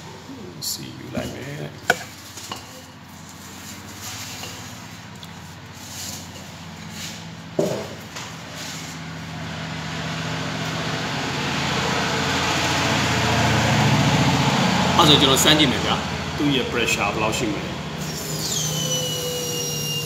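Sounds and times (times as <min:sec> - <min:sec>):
electric fuel pump humming: 0:09.2 - 0:20.0.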